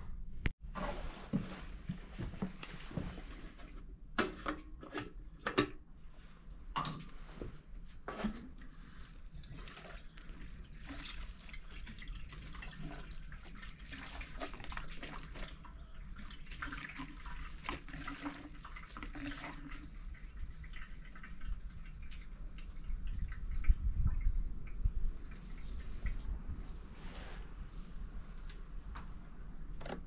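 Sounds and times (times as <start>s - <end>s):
small clicks and splashes: 8.2s - 26.4s
liquid trickling and dripping: 8.4s - 26.8s.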